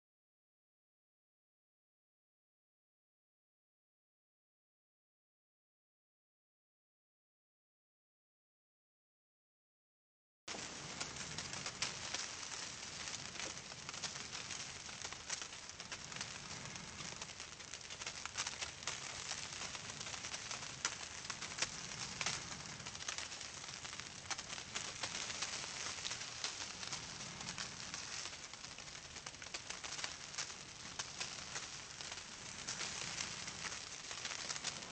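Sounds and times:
wind-driven snow hissing: 10.5 - 34.9
low wind rumble: 10.6 - 34.9.

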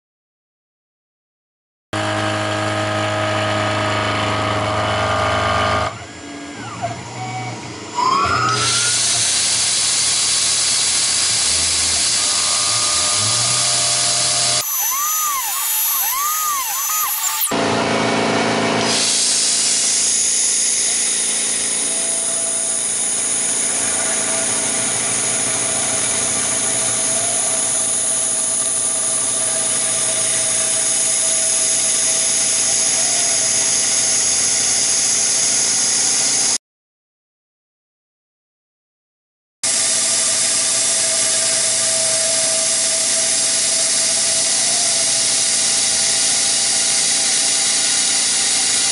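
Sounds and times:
mill spindle cutting metal: 2.0 - 7.1, 7.8 - 36.5, 39.7 - 48.9
repeated swooping tone: 12.2 - 17.6.

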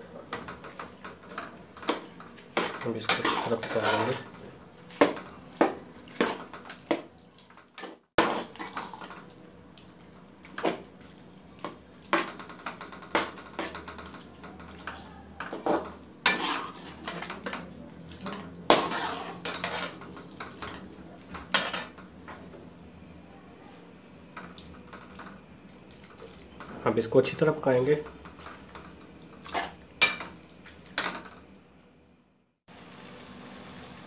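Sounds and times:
ladle scraping metal pan: 2.6 - 4.3, 13.1 - 17.7, 18.3 - 20.8.

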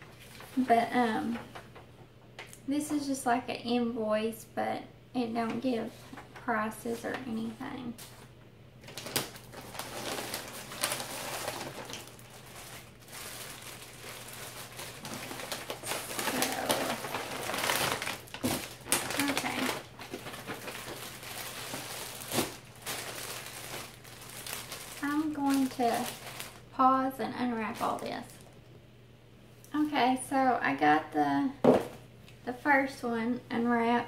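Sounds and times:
plastic packaging crinkling: 6.1 - 26.8.

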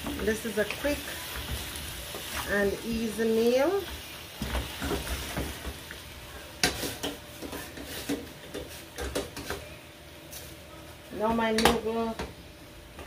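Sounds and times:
wooden spoon stirring in pot: 0.0 - 9.7
faint sizzling: 0.0 - 12.4.

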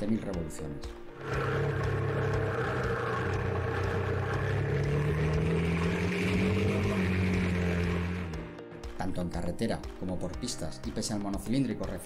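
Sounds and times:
motorcycle engine revving up: 1.2 - 8.5.

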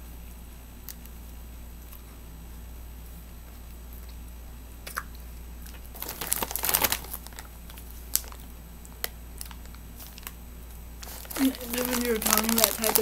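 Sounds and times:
plastic bag crinkling: 5.7 - 8.5, 9.4 - 10.4, 11.0 - 13.0.

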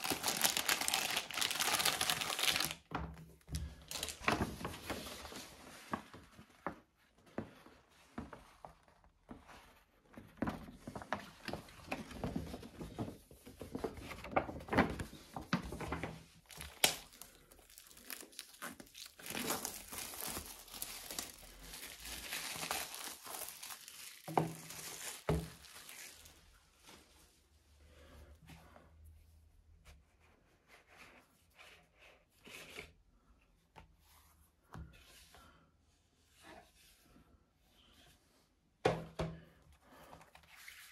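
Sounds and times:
plastic wrap crinkling: 0.0 - 2.9, 3.6 - 5.4, 16.4 - 26.4.

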